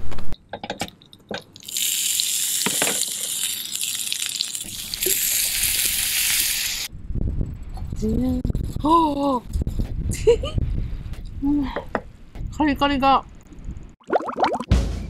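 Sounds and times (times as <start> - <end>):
dumplings sizzling in frying pan: 1.6 - 6.9
water poured into hot pan: 1.6 - 6.9.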